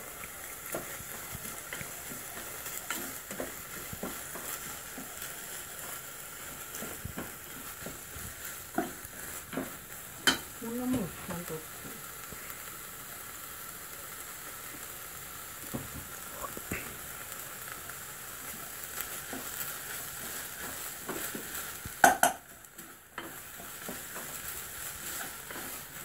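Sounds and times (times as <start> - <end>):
onions sizzling in a frying pan: 0.0 - 26.0
spatula scraping a pan: 0.6 - 10.6, 18.4 - 26.0
loud knocks against a pan: 22.0 - 22.4.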